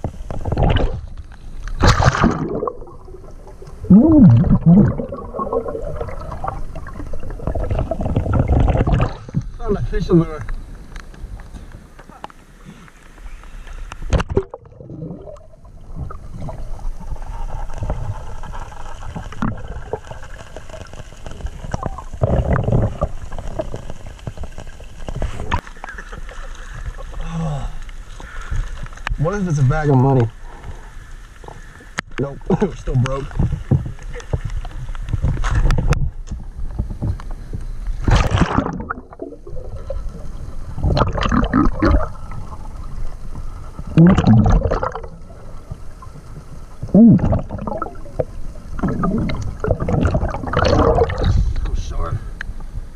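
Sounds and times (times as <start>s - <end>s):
water splashing: 0.0s - 10.5s, 13.4s - 37.0s, 37.8s - 52.1s
underwater gurgling and bubbling: 0.0s - 11.4s, 14.0s - 27.3s, 32.4s - 52.9s
splash into water: 1.8s - 3.0s, 38.0s - 39.4s.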